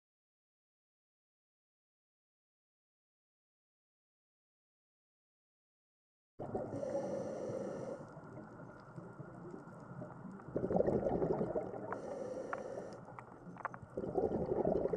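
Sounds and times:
underwater bubbling and gurgling: 6.4 - 14.9
faint hiss: 6.6 - 10.5, 11.8 - 13.7.

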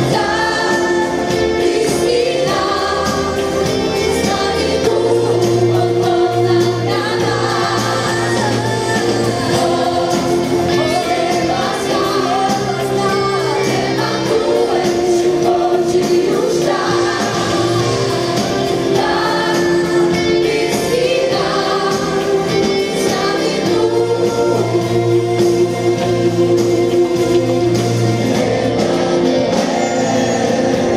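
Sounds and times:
band with acoustic guitar: 0.0 - 30.9
gospel choir singing: 0.0 - 30.9
lead vocals: 0.0 - 30.9.

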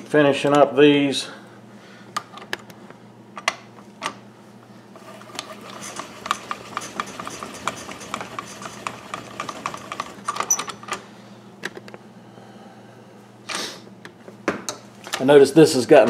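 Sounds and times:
crimper clicking and scraping: 5.0 - 11.1.

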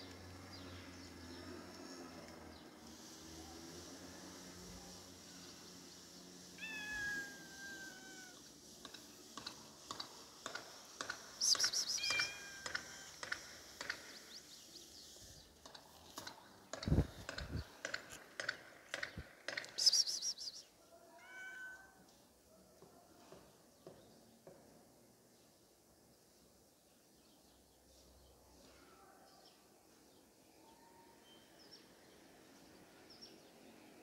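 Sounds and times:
cat meowing: 6.6 - 8.4, 12.0 - 13.2, 21.1 - 22.0.

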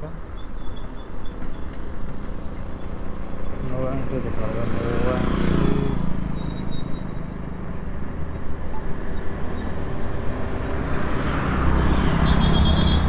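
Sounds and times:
wind and road noise: 0.0 - 13.0
motorcycle engine running: 4.0 - 8.9
high pulsing beep: 5.7 - 7.3.

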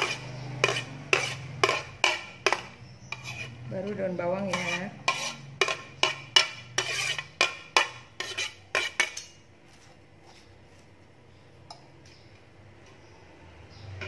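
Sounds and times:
scraping off chopping board: 0.0 - 3.6, 4.5 - 10.9.

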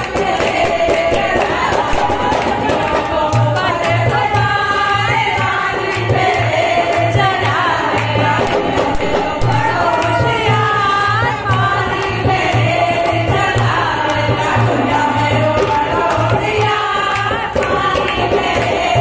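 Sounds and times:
hand drum beat: 0.0 - 19.0
rhythmic clapping: 0.0 - 19.0
women singing folk song: 0.0 - 19.0.

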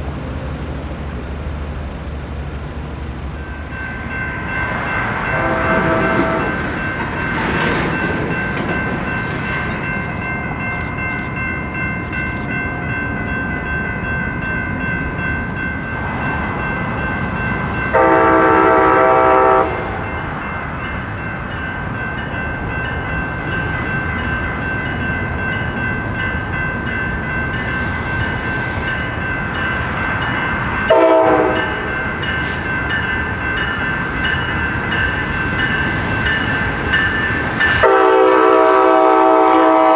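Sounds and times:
train rumbling by: 0.0 - 39.9
locomotive air horn blasts: 5.2 - 6.6, 17.9 - 20.0, 30.9 - 31.9, 37.8 - 39.9.

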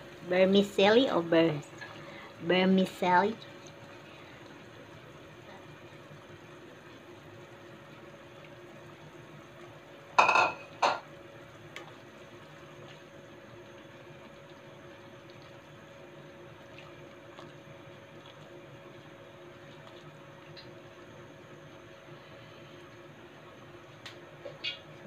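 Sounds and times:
faint steady hum: 0.0 - 25.0
soup simmering in a pot: 1.4 - 25.0
cookware clanking: 10.2 - 11.0.

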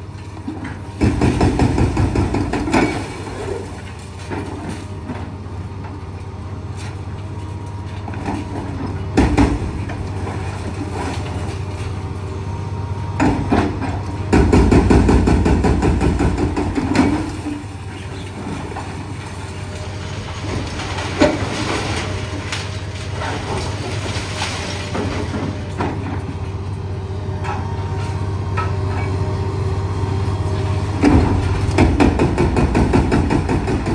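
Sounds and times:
diesel engine running: 0.0 - 33.9
hydraulic breaker hammering: 13.2 - 17.7, 31.0 - 33.9.

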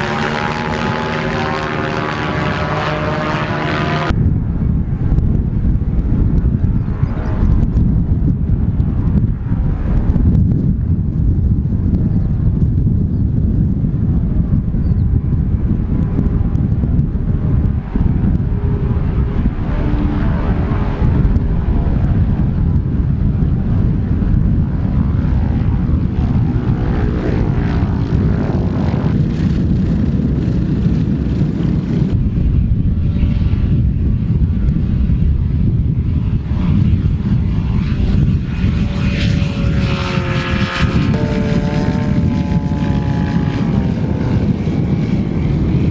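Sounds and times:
ultralight aircraft engines droning: 0.0 - 45.9
wind rumble on microphone: 0.0 - 45.9.

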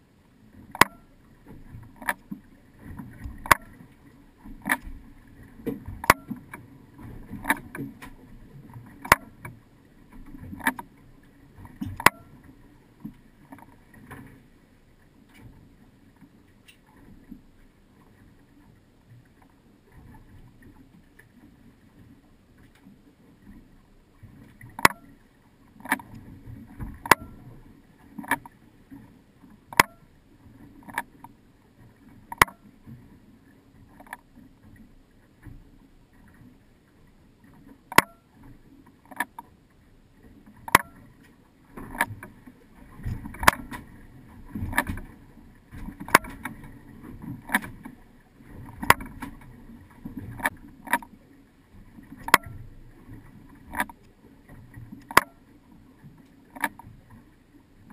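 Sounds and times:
low wash of water: 0.0 - 57.9
waves knocking against hull: 4.5 - 8.3, 8.9 - 9.5, 24.6 - 25.2, 25.8 - 27.6, 40.6 - 41.1, 41.8 - 51.1, 52.1 - 55.4.

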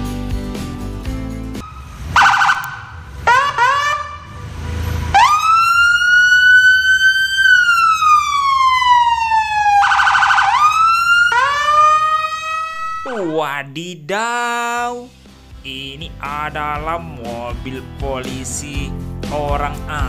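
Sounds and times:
police siren: 1.6 - 13.3.

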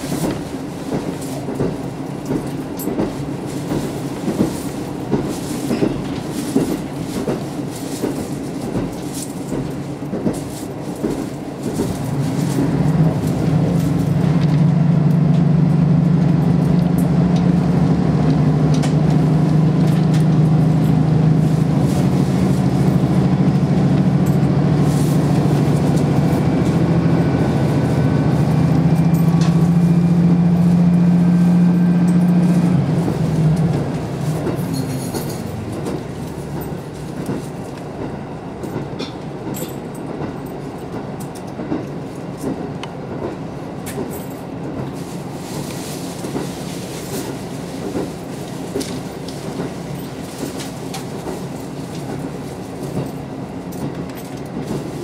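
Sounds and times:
wheels clicking over rail joints: 0.0 - 29.9, 31.9 - 55.0
wheels running on rails: 0.0 - 55.0
diesel engine droning: 12.0 - 38.8.

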